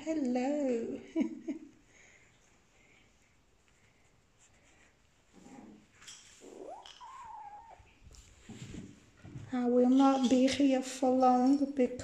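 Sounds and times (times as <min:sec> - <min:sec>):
kitten mewing: 0:06.4 - 0:08.0.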